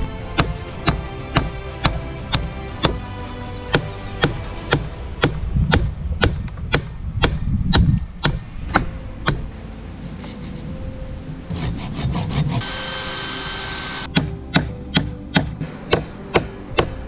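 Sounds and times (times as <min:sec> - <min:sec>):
hammer striking wood: 0:00.3 - 0:03.0, 0:03.7 - 0:09.5, 0:14.1 - 0:17.0
hand saw cutting branch: 0:11.5 - 0:12.9.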